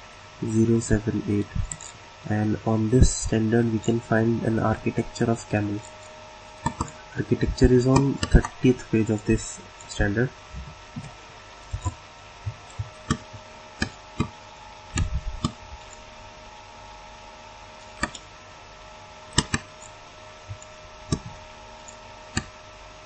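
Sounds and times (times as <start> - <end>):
steady electrical hum: 0.0 - 23.0
computer mouse clicks: 6.6 - 7.0, 14.9 - 16.0, 17.8 - 18.2, 19.4 - 19.9, 20.5 - 22.5.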